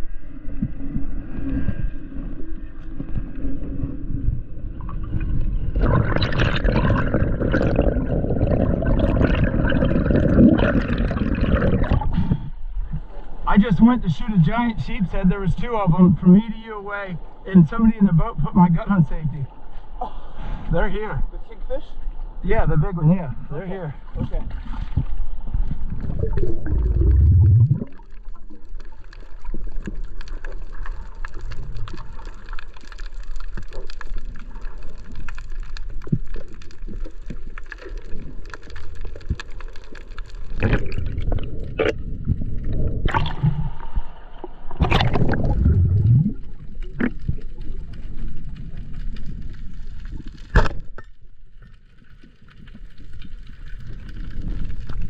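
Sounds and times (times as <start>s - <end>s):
water sloshing and splashing: 24.1s - 50.9s
clicks underwater: 25.7s - 55.0s.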